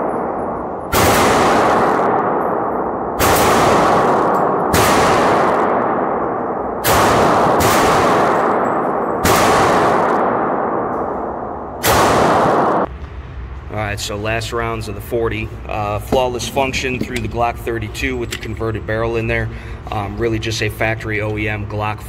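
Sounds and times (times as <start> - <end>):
pistol shots: 0.0 - 12.9
ringing echo of gunshots: 0.0 - 12.9.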